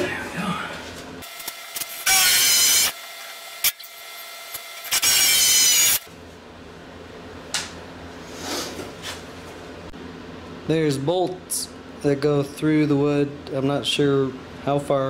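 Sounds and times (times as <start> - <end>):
electric drill drilling screw: 1.2 - 6.1.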